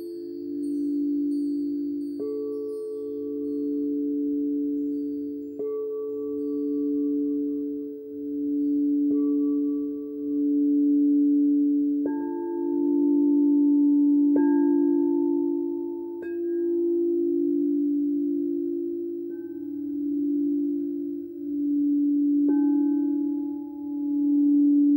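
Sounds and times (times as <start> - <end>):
singing bowls ringing: 0.0 - 24.9
mallet striking bowl: 8.3 - 24.9.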